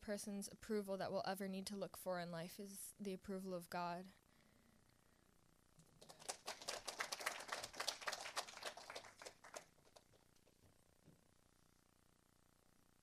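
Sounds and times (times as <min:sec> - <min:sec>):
small group applauding: 0:05.8 - 0:10.5.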